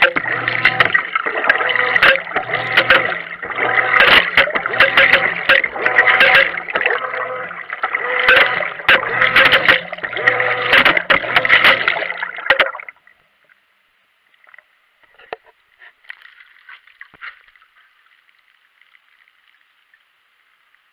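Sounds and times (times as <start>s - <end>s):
washer hum: 0.0s - 13.1s
water churning and sloshing: 0.0s - 13.2s, 15.8s - 20.1s.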